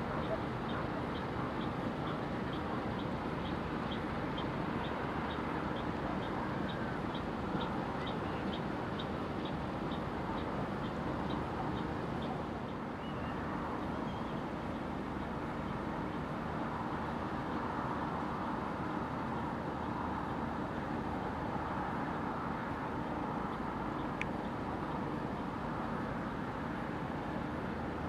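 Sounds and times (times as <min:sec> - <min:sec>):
faint high ticks: 0:23.5 - 0:24.6.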